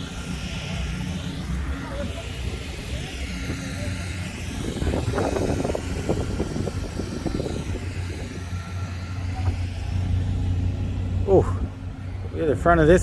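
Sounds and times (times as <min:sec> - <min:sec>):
road noise: 0:00.0 - 0:13.0
vehicle engine hum: 0:00.0 - 0:13.0.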